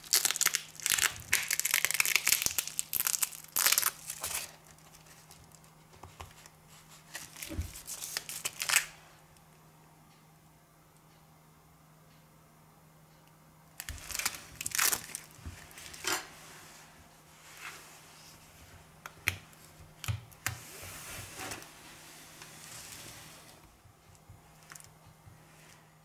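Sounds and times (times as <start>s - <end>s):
crinkling and rustling handling: 0.0s - 9.0s, 13.8s - 26.0s
faint steady hum: 0.0s - 26.0s.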